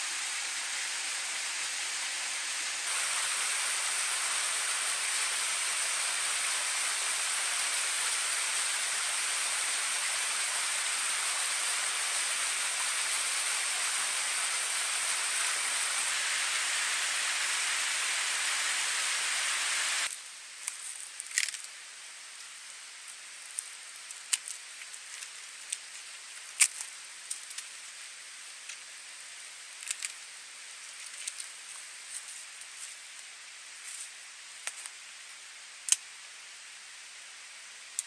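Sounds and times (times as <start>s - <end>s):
waterfall rushing: 0.0s - 20.1s.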